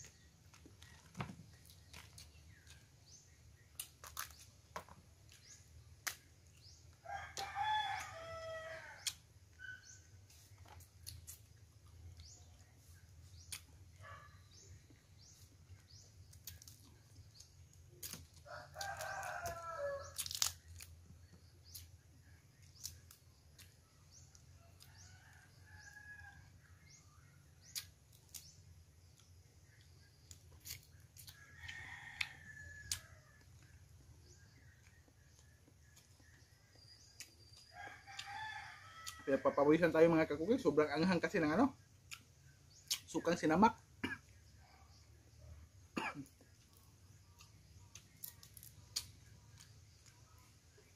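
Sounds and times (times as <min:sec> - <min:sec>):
rooster crowing: 0:07.0 - 0:09.9, 0:18.4 - 0:20.2, 0:37.7 - 0:39.6
crab shells cracking: 0:18.0 - 0:20.9.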